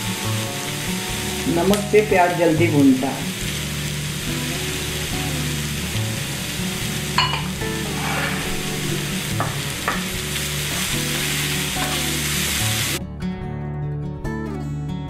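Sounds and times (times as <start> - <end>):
onions sizzling in a frying pan: 0.0 - 13.0
soft background music: 0.0 - 15.0
wooden spatula scraping a pan: 7.4 - 12.1.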